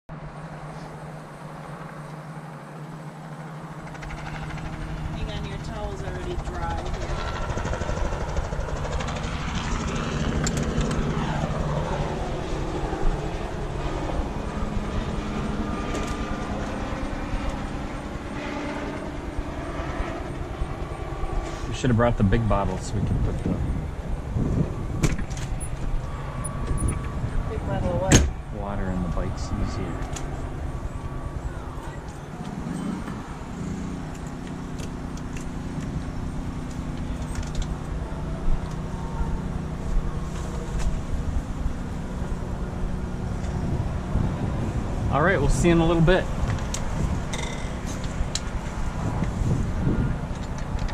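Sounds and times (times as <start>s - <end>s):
propeller aircraft engine droning: 0.1s - 50.9s
wind on microphone: 4.0s - 50.9s
bicycle clicks and rattles: 36.7s - 37.9s, 46.5s - 48.5s, 50.3s - 50.9s.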